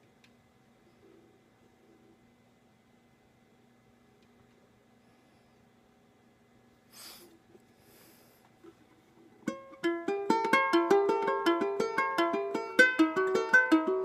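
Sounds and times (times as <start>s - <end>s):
ukulele plucked melody: 9.4s - 14.0s.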